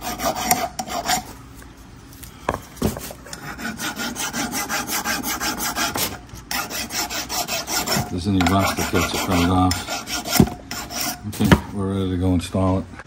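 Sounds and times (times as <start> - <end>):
hand file scraping on steel: 0.0 - 1.3, 3.2 - 11.6.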